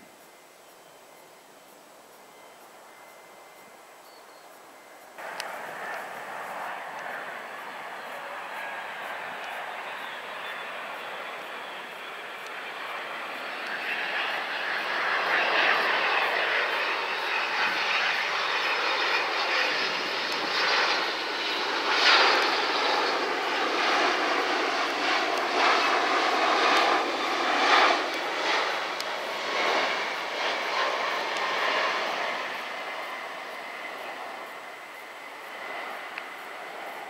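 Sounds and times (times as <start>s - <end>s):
jet airliner passing overhead: 2.1s - 37.0s.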